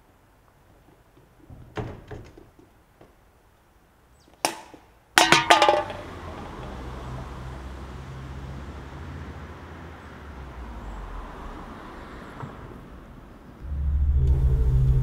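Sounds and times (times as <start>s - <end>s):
metal can clattering on asphalt: 5.2s - 6.9s
low background rumble: 13.6s - 15.0s.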